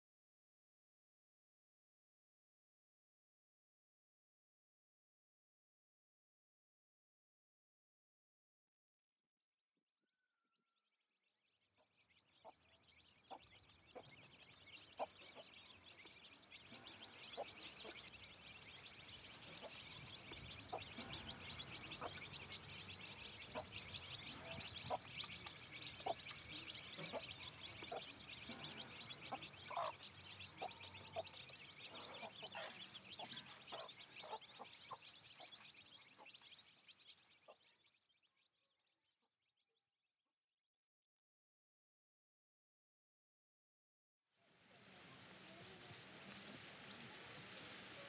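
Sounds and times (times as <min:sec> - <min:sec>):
chicks peeping: 0:11.8 - 0:38.1, 0:44.9 - 0:48.0
hen clucking: 0:12.4 - 0:36.6.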